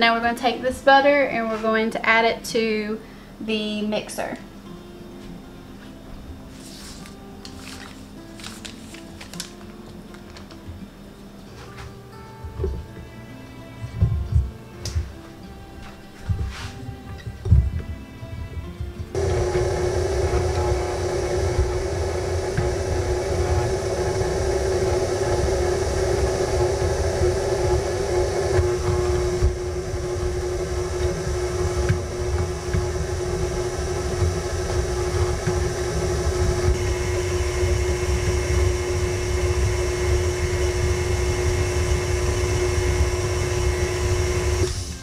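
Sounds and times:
stand mixer motor hum: 0:19.2 - 0:44.8.

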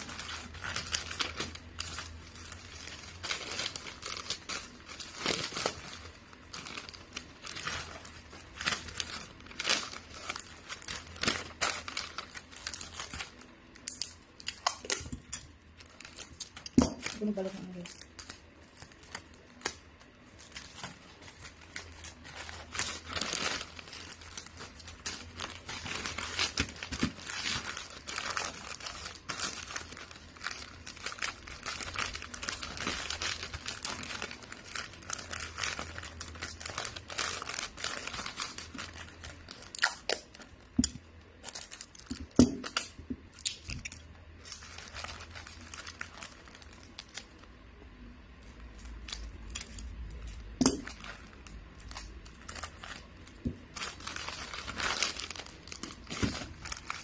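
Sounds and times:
wrapping paper crinkling: 0:00.0 - 0:57.0.

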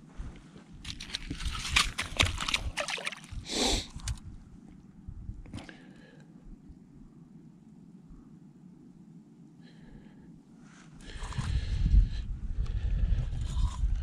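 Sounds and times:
water splashing and sloshing: 0:00.8 - 0:04.2.

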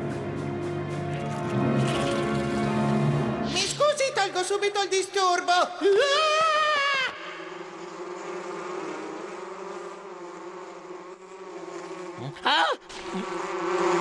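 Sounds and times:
cartoon hornet wings buzzing: 0:05.9 - 0:14.0.

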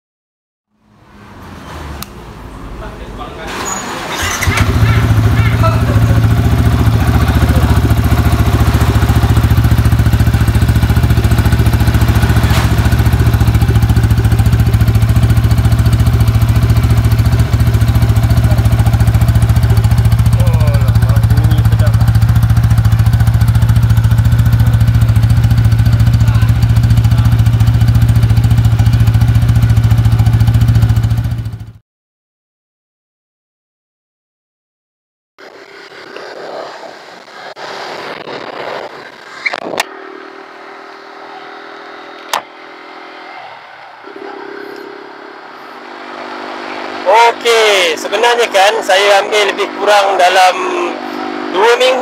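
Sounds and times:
motorcycle engine idling: 0:04.1 - 0:31.8, 0:39.9 - 0:48.5.

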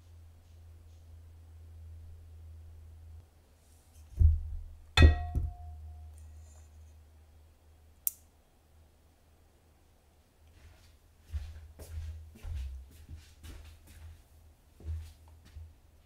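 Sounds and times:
egg knocking on glass bowl: 0:05.0 - 0:05.8
sharp strike ringing on glass: 0:05.0 - 0:06.0.

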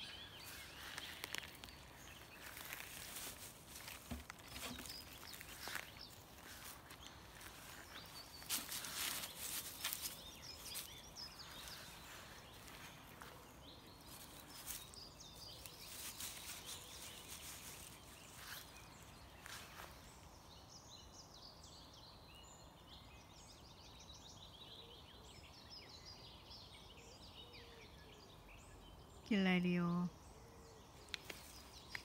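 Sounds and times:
rustling and scuffling in grass: 0:00.0 - 0:20.3
birds chirping faintly: 0:00.0 - 0:32.0.

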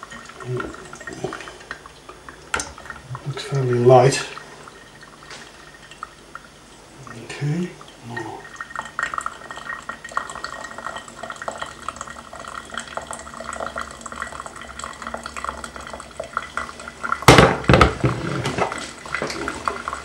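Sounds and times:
water trickling into coffee filter: 0:00.0 - 0:20.0
kettle set down on worktop: 0:17.3 - 0:18.7.

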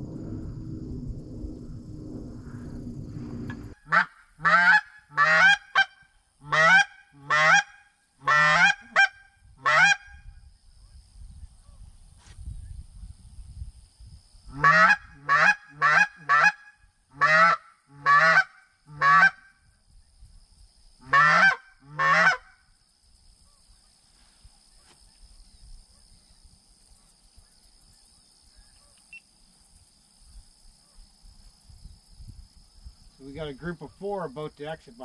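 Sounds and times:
goose call honks: 0:03.8 - 0:10.1, 0:14.5 - 0:19.4, 0:21.0 - 0:22.5.

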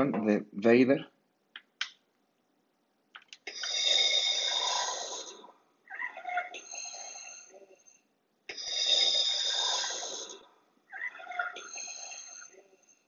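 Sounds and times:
mechanical breathing from speaker: 0:03.5 - 0:05.5, 0:06.5 - 0:10.5, 0:11.6 - 0:13.0.

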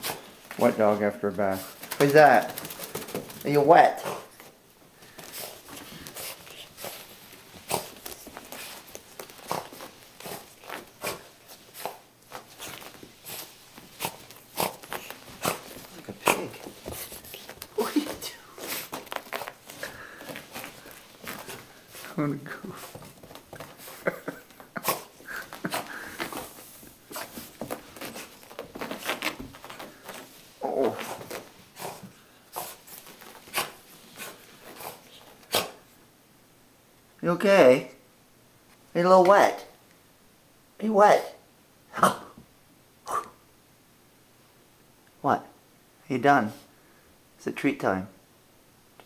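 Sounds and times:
dog rubbing on carpet: 0:05.1 - 0:35.8.

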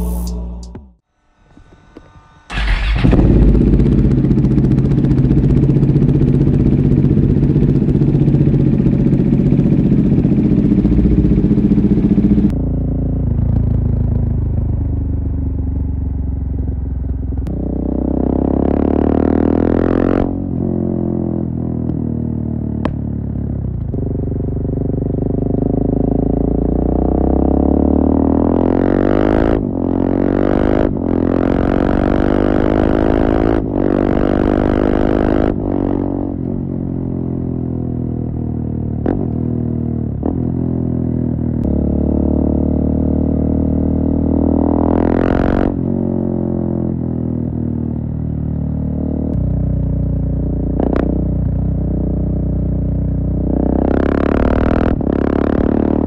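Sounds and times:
motorcycle engine revving through gears: 0:00.0 - 0:56.0.

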